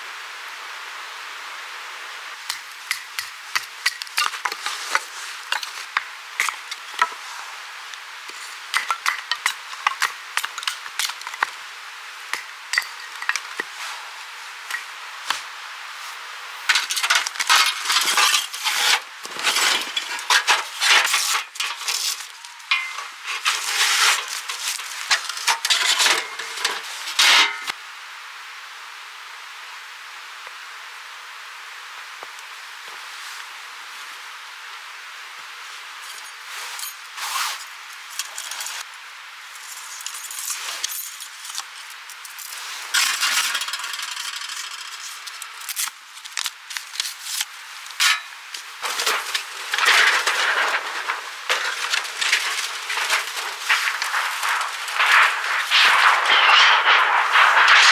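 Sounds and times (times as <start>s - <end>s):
steady hiss: 0.0s - 57.9s
clattering and scraping: 16.7s - 27.7s, 42.5s - 45.9s, 47.9s - 57.9s.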